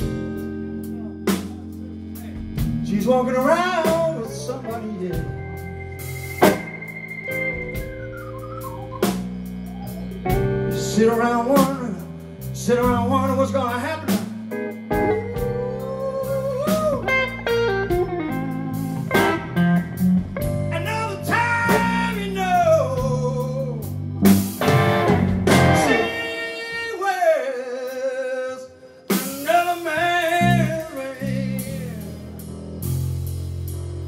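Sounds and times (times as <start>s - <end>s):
blues band playing: 0.0s - 34.0s
wavering guitar note: 3.1s - 11.2s, 24.6s - 26.6s
cymbal crash: 5.7s - 9.3s.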